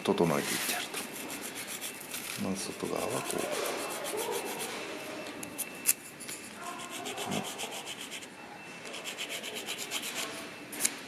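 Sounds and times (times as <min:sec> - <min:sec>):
wooden fork scratching on sandpaper: 0:00.4 - 0:04.7, 0:06.4 - 0:08.3, 0:08.9 - 0:10.4.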